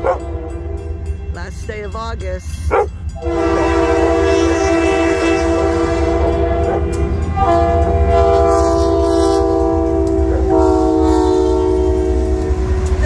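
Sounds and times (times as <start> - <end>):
low locomotive rumble: 0.0 - 13.0
locomotive air horn blasts: 3.1 - 13.0.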